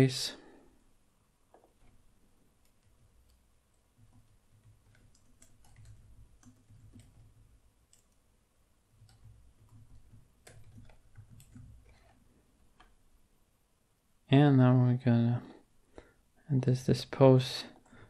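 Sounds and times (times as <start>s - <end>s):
low background hum: 0.0s - 18.0s
keyboard typing: 2.6s - 8.2s, 8.9s - 13.0s.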